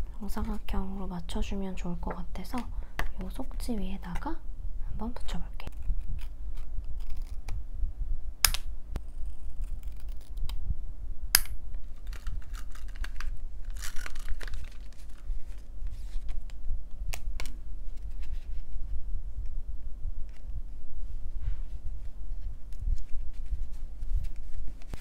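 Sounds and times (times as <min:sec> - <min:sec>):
steady low hum: 0:00.0 - 0:25.0
paper rustling: 0:11.9 - 0:18.7, 0:22.0 - 0:25.0.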